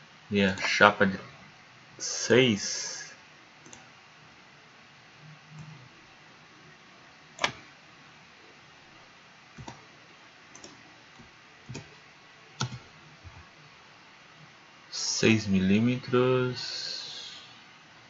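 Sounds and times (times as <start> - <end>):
mouse and keyboard clicks: 7.4 - 7.6, 9.6 - 9.8, 10.5 - 10.8, 12.6 - 12.8.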